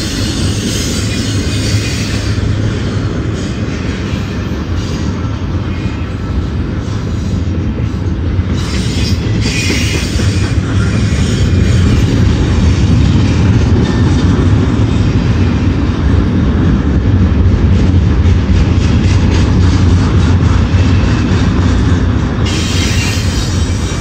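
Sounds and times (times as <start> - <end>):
train wheels rumbling on rail: 0.0 - 24.0
wheel squeal: 8.5 - 12.3, 22.4 - 24.0.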